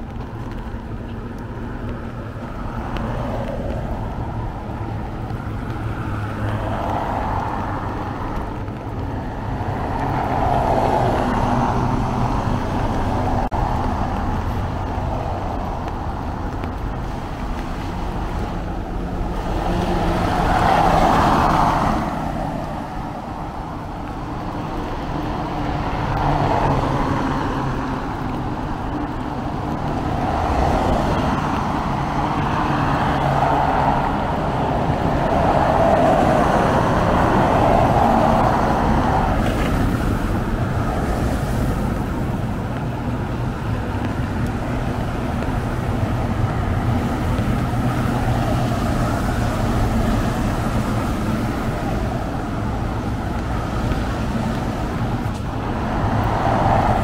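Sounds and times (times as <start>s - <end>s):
low traffic rumble: 0.0s - 57.0s
vehicles passing: 0.0s - 57.0s.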